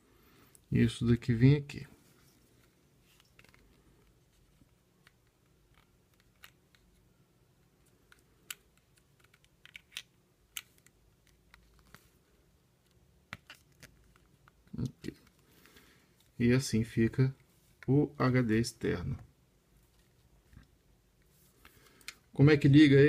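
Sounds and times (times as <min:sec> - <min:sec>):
plastic parts clicking and scraping: 0:02.4 - 0:07.1, 0:07.8 - 0:12.1.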